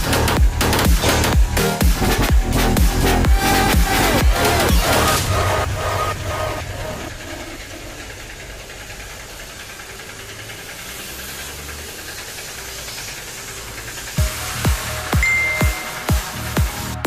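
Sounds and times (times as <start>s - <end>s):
music with thudding beats: 0.0s - 6.6s, 14.2s - 17.0s
motor humming: 0.1s - 16.9s
water spraying from a hose: 7.8s - 15.2s.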